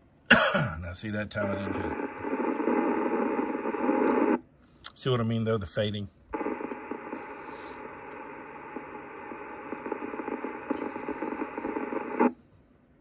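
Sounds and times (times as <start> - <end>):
radio static hiss: 1.0 - 4.4, 5.0 - 12.4
faint crackles: 1.4 - 4.4, 6.3 - 12.4.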